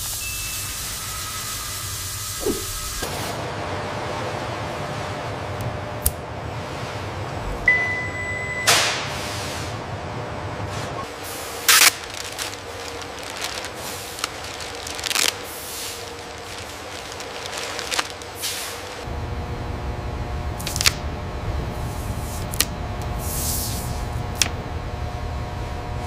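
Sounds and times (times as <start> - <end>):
plastic wrap rustling and crinkling: 11.1 - 19.1.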